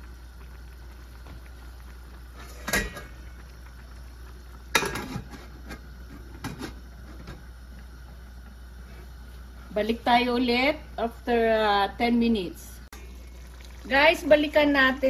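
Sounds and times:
steady low hum: 0.0 - 15.0
metal lid clanking on wok: 2.6 - 3.1.

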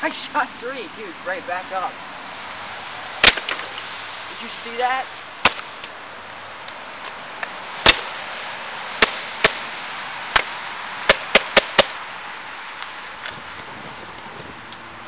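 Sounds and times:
airsoft pistol shooting: 3.2 - 3.7, 7.8 - 8.1.

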